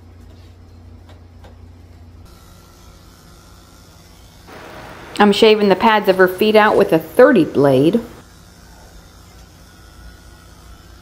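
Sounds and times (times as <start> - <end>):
electric clippers buzzing: 2.3 - 11.0.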